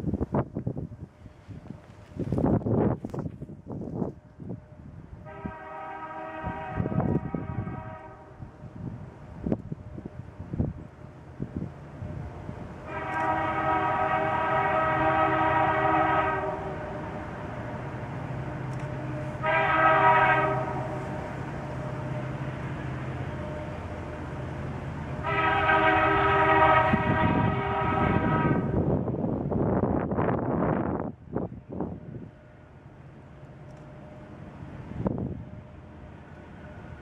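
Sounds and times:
locomotive air horn blasts: 0:05.2 - 0:08.4, 0:12.8 - 0:17.1, 0:19.2 - 0:21.3, 0:25.2 - 0:28.9.

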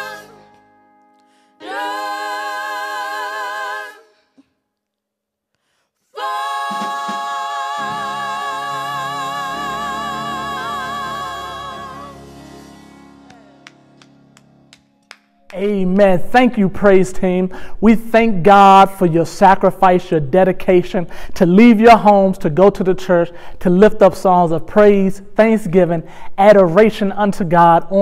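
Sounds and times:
women singing gospel: 0:00.0 - 0:00.7, 0:01.6 - 0:04.5, 0:06.0 - 0:13.6
low instrumental accompaniment: 0:07.7 - 0:17.1.

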